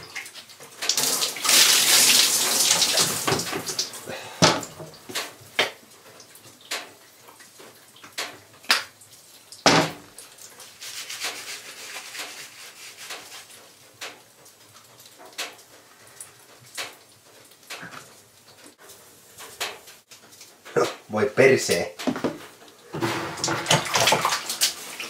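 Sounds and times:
hands scrubbing soapy hair: 0:10.6 - 0:13.6.

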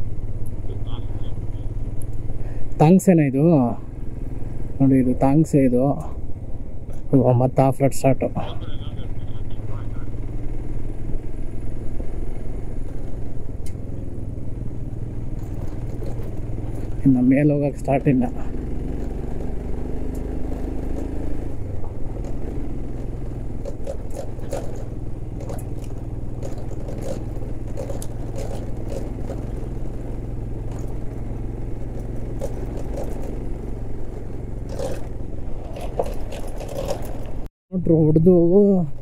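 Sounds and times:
motorcycle engine running: 0:00.0 - 0:39.0
clicks and rattles of bike: 0:15.0 - 0:37.5.

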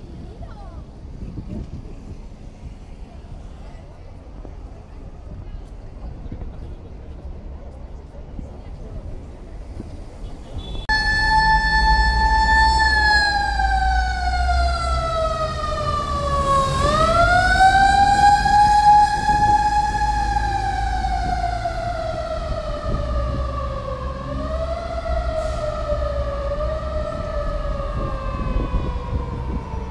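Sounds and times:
street traffic rumble: 0:00.0 - 0:29.9
fire engine siren wailing: 0:10.9 - 0:29.9.

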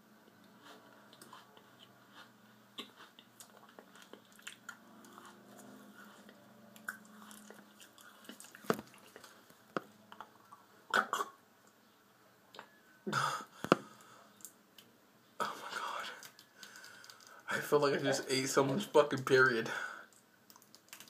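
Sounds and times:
person chewing with wet smacks: 0:00.3 - 0:11.3, 0:20.1 - 0:21.0.

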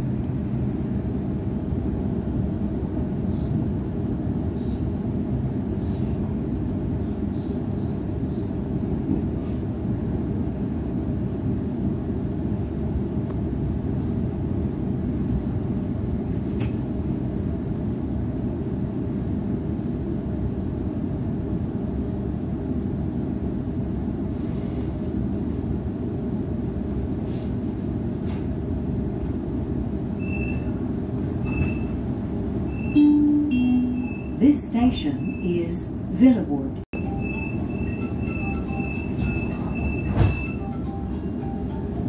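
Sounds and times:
electric train rumbling: 0:00.0 - 0:42.0
short high beep: 0:32.7 - 0:34.4.

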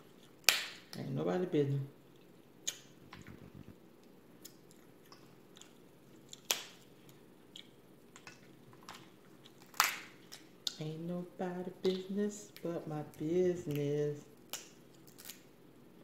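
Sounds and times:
soft eating sounds: 0:00.0 - 0:15.6
crab shells cracking: 0:04.5 - 0:10.8, 0:14.4 - 0:15.5.

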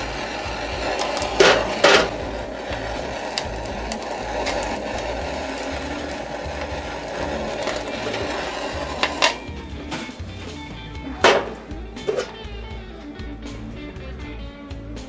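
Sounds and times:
blowtorch flame hissing: 0:00.0 - 0:10.4.

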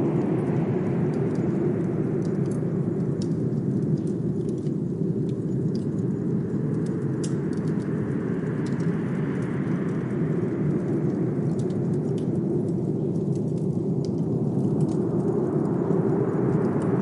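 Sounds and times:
blizzard wind blowing: 0:00.0 - 0:17.0
wood fire crackling: 0:00.0 - 0:17.0.

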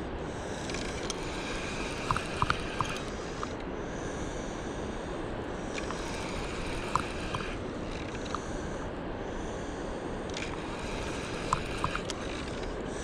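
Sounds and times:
fishing reel clicking: 0:00.4 - 0:04.4, 0:05.6 - 0:08.8, 0:10.2 - 0:13.0.

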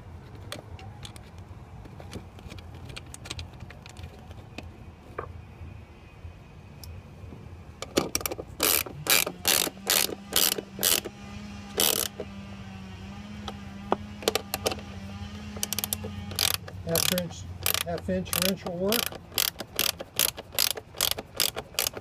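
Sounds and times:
ratcheting wrench clicking: 0:07.9 - 0:11.1, 0:11.8 - 0:12.2, 0:15.6 - 0:22.0.

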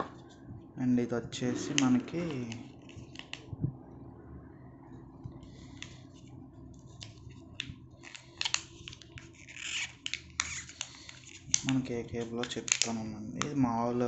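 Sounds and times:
cable clicking and crinkling: 0:06.8 - 0:13.6.

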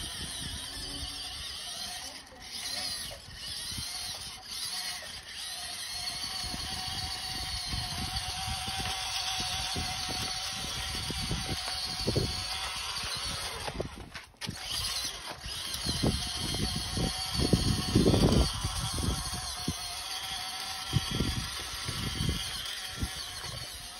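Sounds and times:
model truck motor whine: 0:00.0 - 0:23.9.

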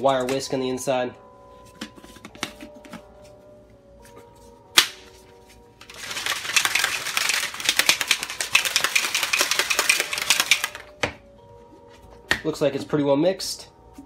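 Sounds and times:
whisk ball rattling in shaker cup: 0:05.8 - 0:10.9.

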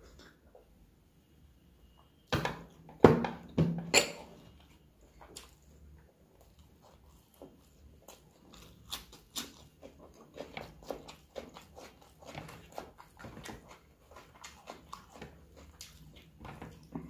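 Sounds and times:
wet chewing and lip-smacking: 0:05.1 - 0:17.0.

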